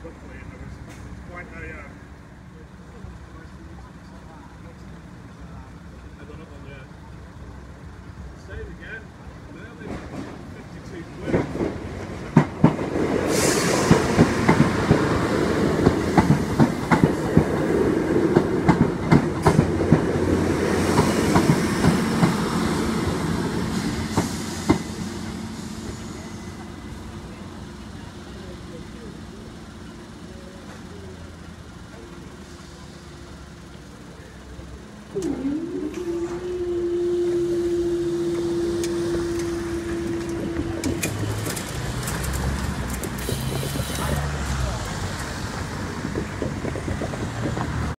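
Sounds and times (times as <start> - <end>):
car engines: 0.0 - 48.0
train rumble: 0.0 - 48.0
train wheels clickety-clack: 9.7 - 26.7, 38.3 - 48.0.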